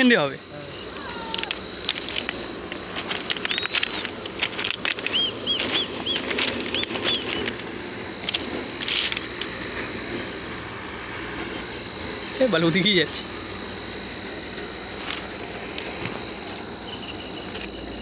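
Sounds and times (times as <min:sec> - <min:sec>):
scattered clicks: 0:01.0 - 0:09.9
bird chirping: 0:05.1 - 0:07.4, 0:16.8 - 0:18.0.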